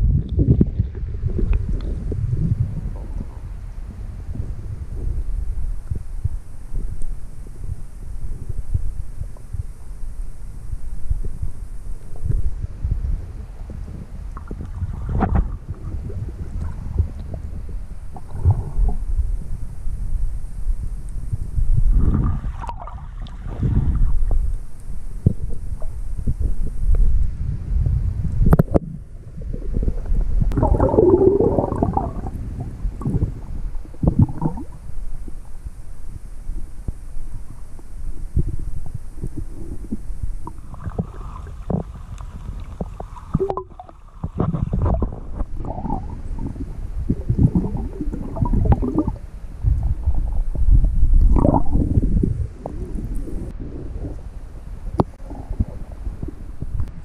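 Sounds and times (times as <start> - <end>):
muffled underwater rumble: 0.0 - 57.0
water churning: 21.9 - 24.4, 29.2 - 35.6, 37.4 - 57.0.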